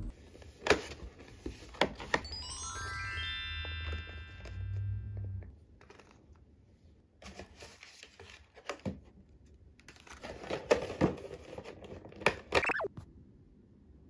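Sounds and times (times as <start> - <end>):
paper and cardboard rustling: 7.2 - 9.1, 9.8 - 12.5.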